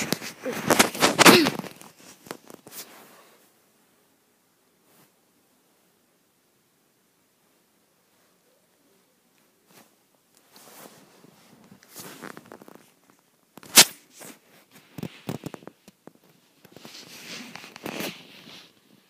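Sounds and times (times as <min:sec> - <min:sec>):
fabric rustling: 0:00.0 - 0:03.5, 0:09.4 - 0:19.0.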